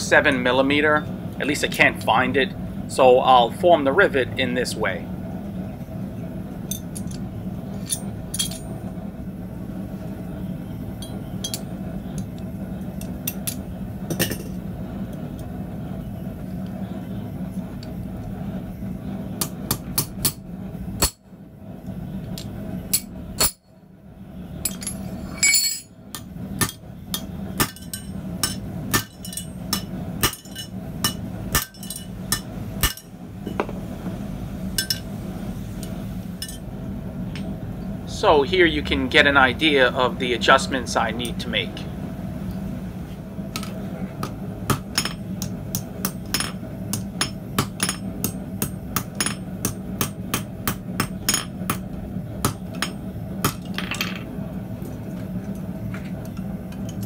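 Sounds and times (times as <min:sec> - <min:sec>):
steady low hum: 0:00.0 - 0:57.0
hammer striking steel on anvil: 0:22.9 - 0:23.7, 0:24.6 - 0:33.1, 0:43.6 - 0:53.8.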